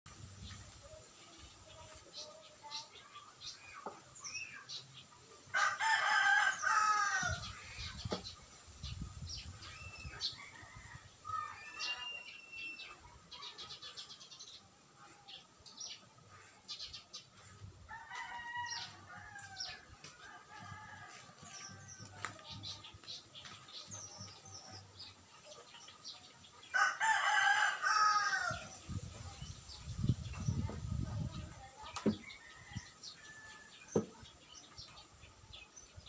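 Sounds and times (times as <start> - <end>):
small birds chirping: 0.2 - 36.0
rooster crowing: 5.5 - 7.4, 17.9 - 22.2, 26.7 - 28.7.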